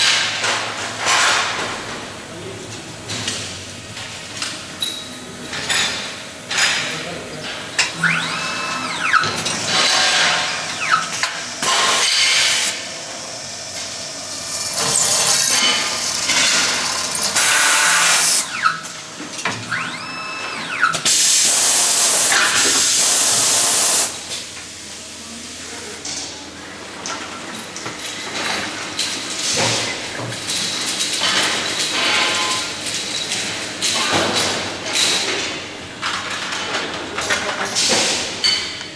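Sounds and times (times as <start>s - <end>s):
machining noise: 7.8s - 11.2s
motor whine: 7.9s - 9.3s.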